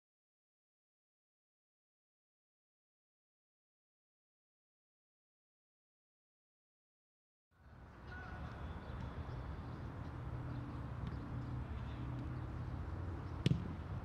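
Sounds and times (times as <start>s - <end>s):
faint distant calls: 7.6s - 14.0s.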